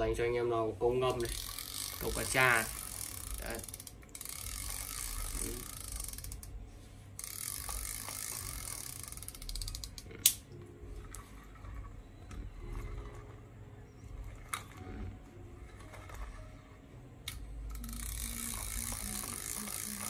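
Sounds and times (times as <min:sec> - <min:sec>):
fishing reel gears whirring: 0:00.9 - 0:20.0
sharp click: 0:09.9 - 0:10.5.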